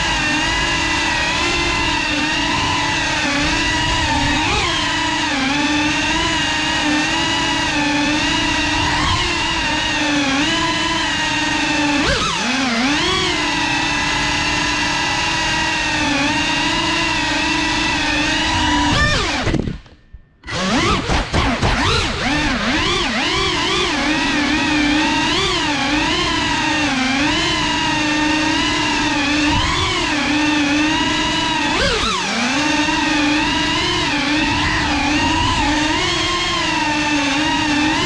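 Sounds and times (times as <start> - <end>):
drone motors whining: 0.0 - 38.0.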